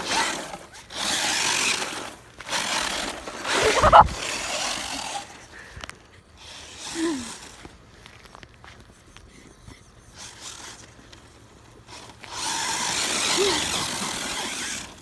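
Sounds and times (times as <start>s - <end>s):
rc car motor running: 0.0s - 5.4s, 6.4s - 7.7s, 9.8s - 15.0s.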